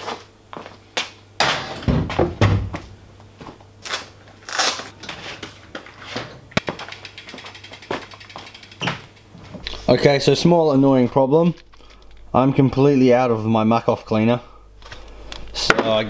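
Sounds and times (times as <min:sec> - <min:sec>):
bike being handled knocks and clanks: 0:01.4 - 0:02.9, 0:05.0 - 0:09.6
rapid even ticking: 0:06.6 - 0:09.3.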